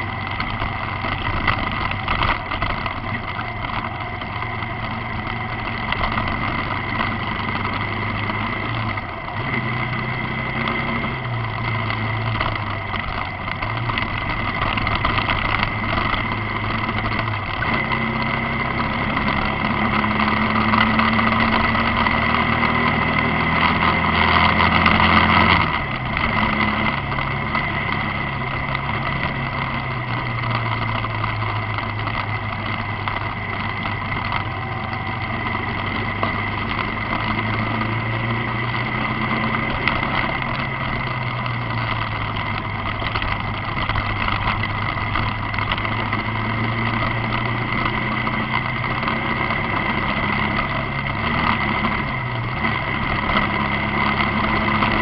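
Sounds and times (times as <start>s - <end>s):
vehicle engine shifting gears: 0.0s - 55.0s
wind and road noise: 0.0s - 55.0s.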